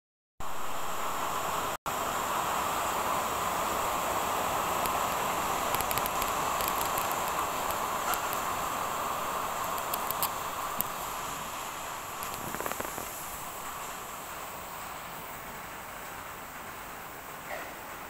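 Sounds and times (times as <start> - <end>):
heavy rain pouring: 0.5 - 18.0
raindrops ticking on glass: 4.8 - 8.7.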